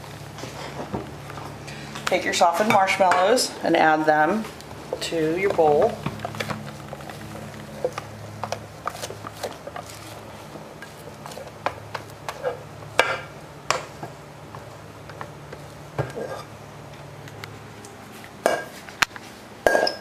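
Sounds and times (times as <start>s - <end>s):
steady low hum: 0.0s - 20.0s
spatula scraping bowl: 16.0s - 16.5s
glass bowl clinking on steel bowl: 19.6s - 20.0s.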